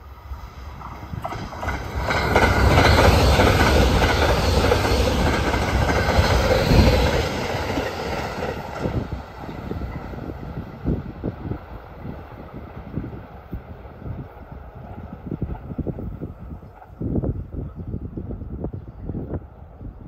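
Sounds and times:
electric train passing at speed: 0.0 - 20.0
wheels clattering on rails: 0.8 - 10.4.

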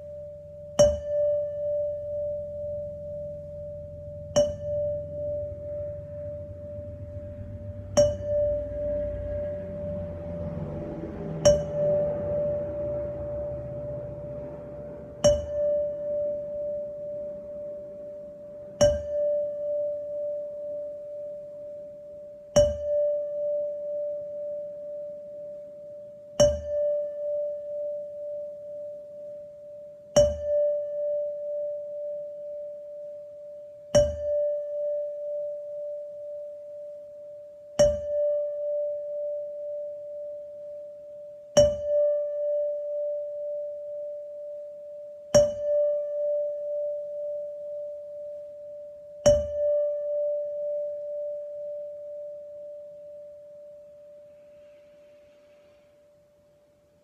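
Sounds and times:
singing bowl struck with mallet: 0.0 - 21.8, 22.6 - 25.5, 26.4 - 29.3, 30.2 - 32.6, 34.0 - 35.4, 37.8 - 40.3, 41.6 - 44.1, 45.4 - 47.9, 49.3 - 51.8.

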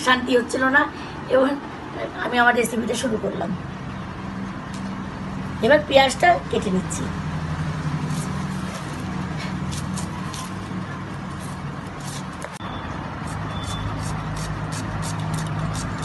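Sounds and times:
onion being sliced on a blade: 8.0 - 12.5, 13.2 - 16.0.

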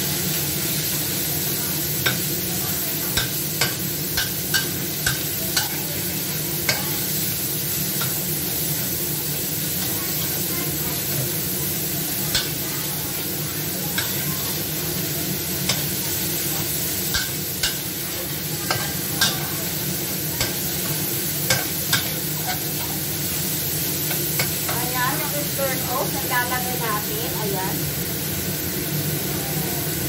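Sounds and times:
meat sizzling in a wok: 0.0 - 30.0
spatula clinking against pan: 3.1 - 5.9, 17.1 - 17.9, 18.6 - 19.5, 20.4 - 22.7.

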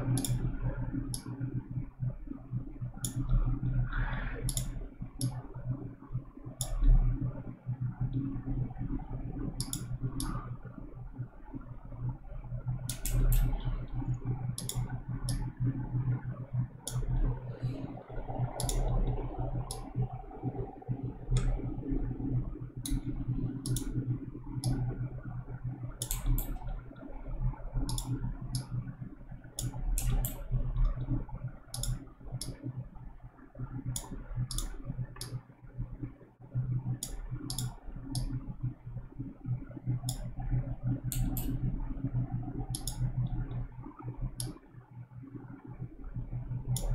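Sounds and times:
computer mouse clicking: 0.0 - 1.6, 3.0 - 3.6, 4.4 - 5.4, 6.6 - 7.1, 9.5 - 10.5, 12.8 - 16.0, 16.8 - 17.3, 18.4 - 20.0, 21.3 - 21.7, 22.8 - 25.0, 26.0 - 27.1, 27.8 - 28.8, 29.5 - 32.8, 33.7 - 35.4, 36.8 - 38.5, 39.9 - 41.7, 42.7 - 43.7, 44.4 - 44.6, 46.6 - 46.9
steady low hum: 0.0 - 46.9.

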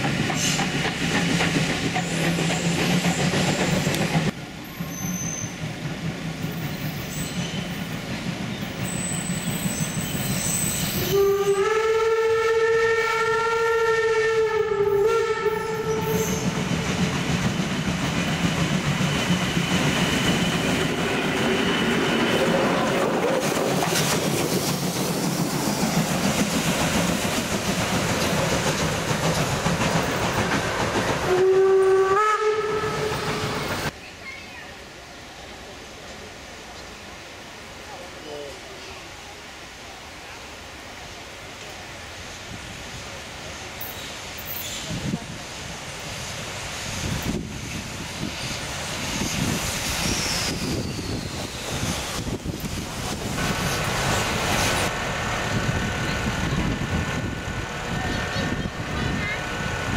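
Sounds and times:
steam locomotive rumbling: 0.0 - 59.9
steam whistle: 10.4 - 16.6, 31.3 - 33.6.

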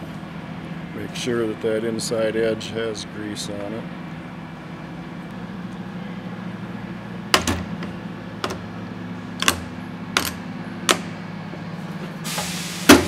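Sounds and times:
steady low hum: 0.0 - 12.3
lid shutting with loud clack: 7.4 - 8.7.

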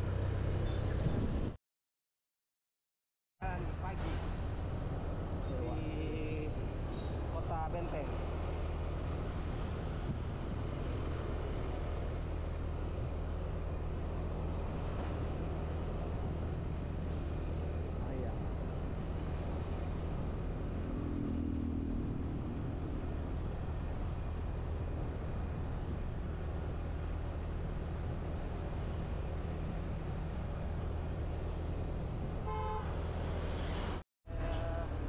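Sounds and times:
wind rumble on microphone: 0.0 - 1.6, 3.6 - 35.0
horn toot: 32.4 - 33.0.

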